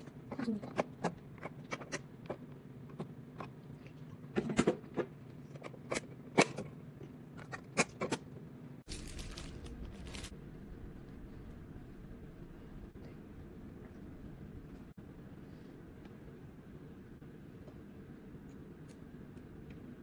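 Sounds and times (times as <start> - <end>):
plastic packaging crinkling: 8.9 - 10.4.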